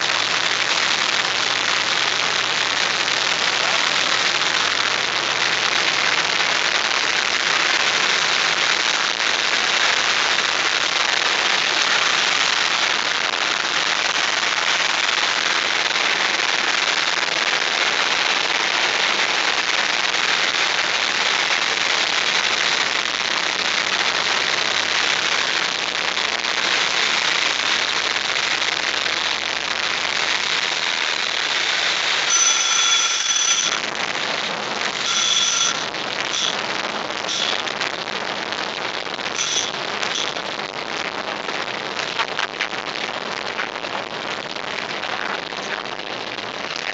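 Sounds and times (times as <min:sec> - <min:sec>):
high electronic warning beep: 0:32.3 - 0:33.9, 0:35.0 - 0:36.6, 0:37.3 - 0:37.7, 0:39.4 - 0:40.4.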